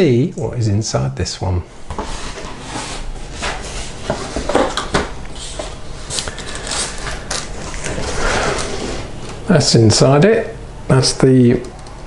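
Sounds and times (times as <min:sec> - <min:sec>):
cardboard scraping and rubbing: 0:01.9 - 0:04.8, 0:05.4 - 0:09.2.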